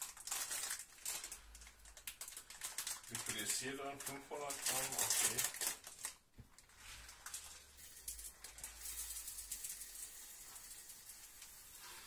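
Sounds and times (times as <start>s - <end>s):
rice grains pouring into bowl: 7.7s - 12.0s.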